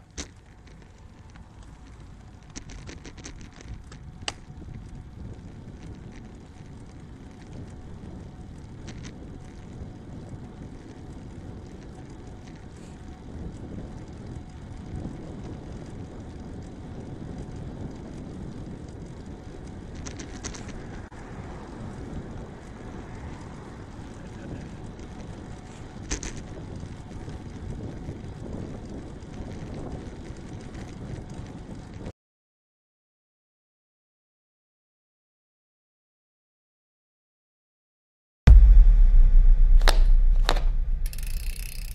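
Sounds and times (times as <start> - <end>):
tyre and road rumble: 0.0 - 32.1, 38.5 - 41.9
wind buffeting microphone: 0.6 - 32.1.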